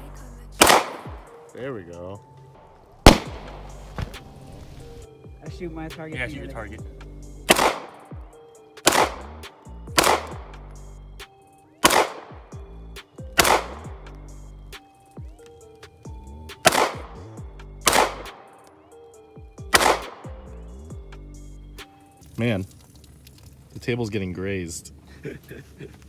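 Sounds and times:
background music: 0.0 - 23.0
pistol shots: 0.6 - 1.4, 3.0 - 3.7, 7.5 - 8.2, 8.8 - 10.6, 11.8 - 12.6, 13.4 - 14.1, 16.6 - 18.6, 19.7 - 20.3.

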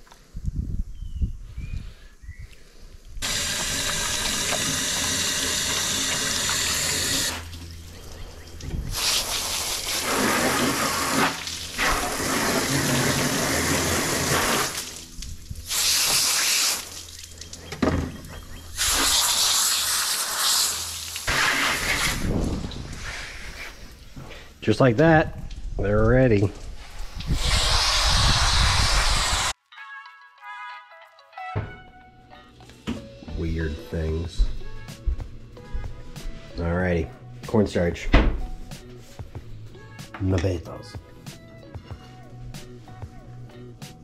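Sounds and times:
hose nozzle spraying water: 3.2 - 17.6, 18.7 - 24.1, 26.8 - 29.6.

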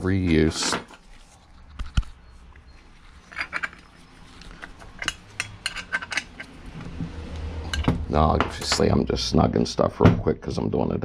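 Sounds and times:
wrench clinking on metal: 3.2 - 3.9, 4.6 - 6.6.

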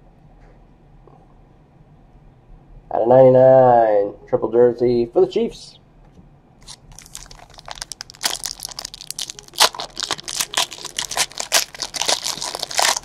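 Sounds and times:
foil wrapper tearing and crinkling: 6.6 - 13.0.

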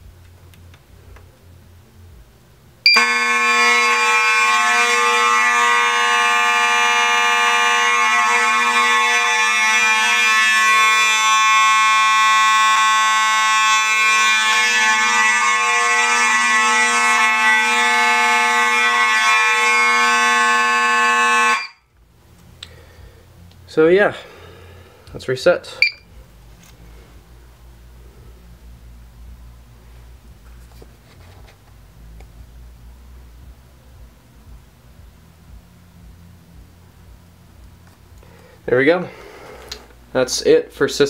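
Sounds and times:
fire alarm horns blaring: 2.9 - 22.0, 25.7 - 26.1.

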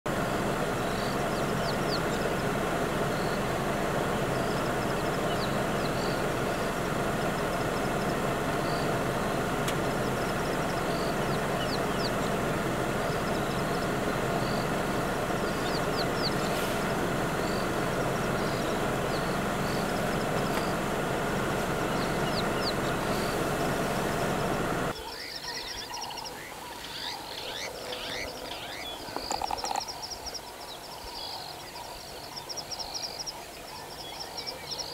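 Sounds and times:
vehicle engine running: 0.0 - 25.0
small birds chirping: 0.2 - 34.9.

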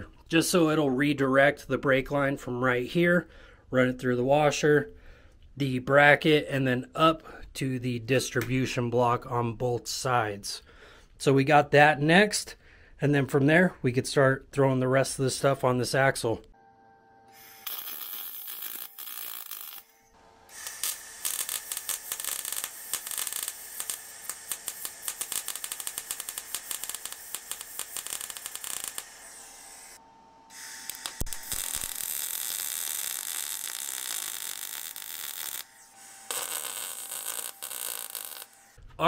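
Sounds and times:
welder arc crackling: 17.6 - 38.8.

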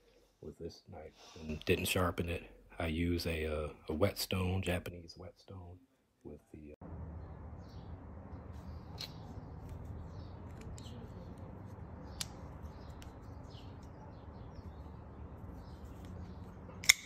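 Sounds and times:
low background hum: 6.3 - 17.0
knife blade snapping open: 16.8 - 17.0.

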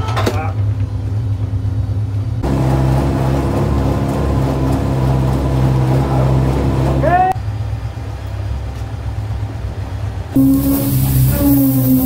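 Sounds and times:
machine engine humming: 2.1 - 8.5, 10.2 - 12.0
hiss: 10.4 - 12.0.

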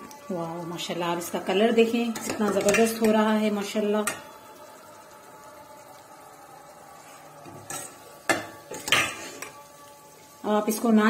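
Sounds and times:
spoon clinking against dishes: 7.5 - 9.6.

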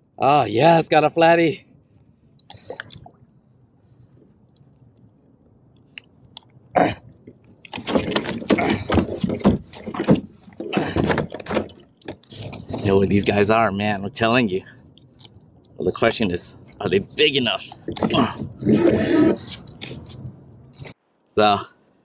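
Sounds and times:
fish slapping against kayak: 7.7 - 12.8.

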